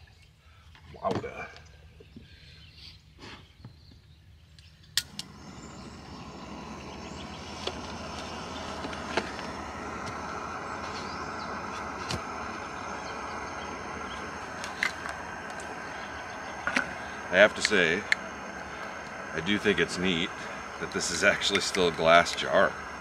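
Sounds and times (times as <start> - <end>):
gas stove igniting click: 5.0 - 19.3
gas stove burner hissing: 5.0 - 23.0.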